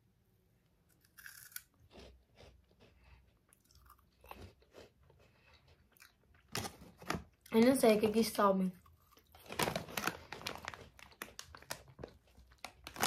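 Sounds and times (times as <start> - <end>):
chewing soft snack: 0.9 - 6.7, 8.8 - 13.0.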